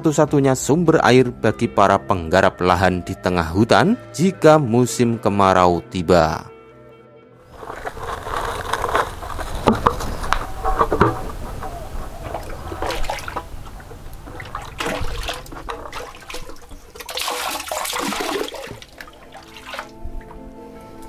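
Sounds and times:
water splashing in bucket: 7.6s - 20.3s.

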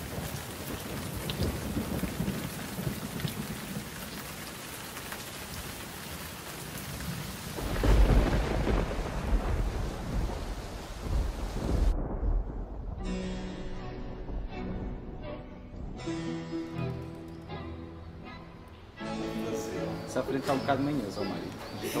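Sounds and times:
thunder rumbling: 0.0s - 4.6s, 6.7s - 16.3s
steady rain: 0.0s - 13.4s, 19.2s - 22.0s.

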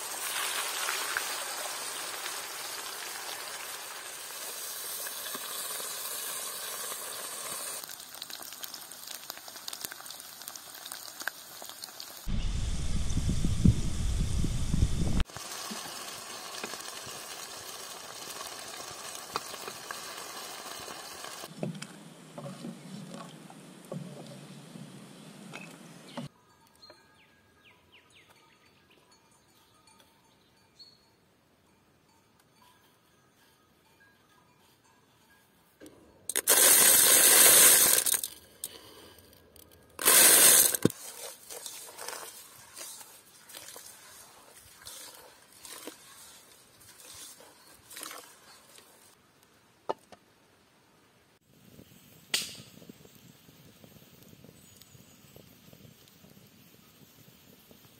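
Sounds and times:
chips sizzling in hot oil: 0.0s - 12.3s, 15.2s - 21.5s, 36.3s - 38.3s, 40.0s - 49.1s
rice grains pouring into pot: 36.3s - 38.3s, 40.0s - 44.3s.

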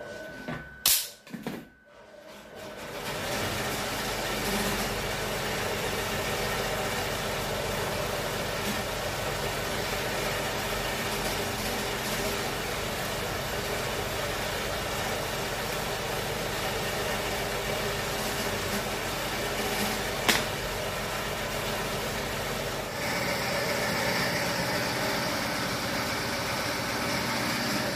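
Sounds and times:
sharp click: 0.8s - 1.2s
machine humming: 19.5s - 27.9s.

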